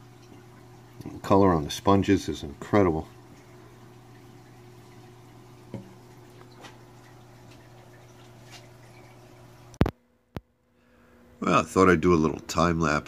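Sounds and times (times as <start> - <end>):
water dripping: 0.0 - 9.9
low electrical hum: 0.0 - 13.0.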